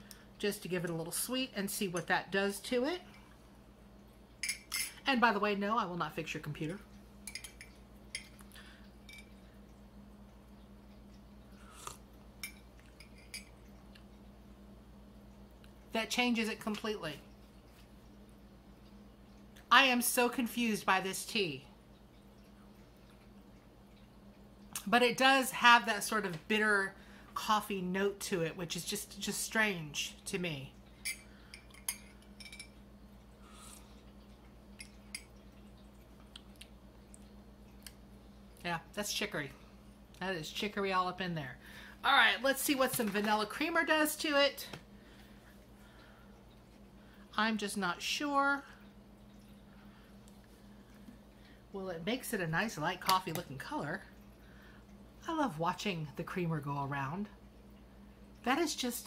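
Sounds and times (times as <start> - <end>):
low steady hum: 0.0 - 59.0
person slurping tea: 11.6 - 12.0
sip from a mug: 11.6 - 12.0.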